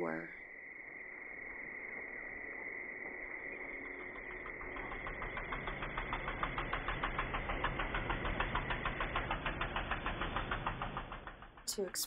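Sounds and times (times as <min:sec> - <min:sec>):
low hum: 0:00.0 - 0:12.0
riding lawn mower engine running: 0:01.6 - 0:12.0
fast even ticking: 0:02.5 - 0:12.0.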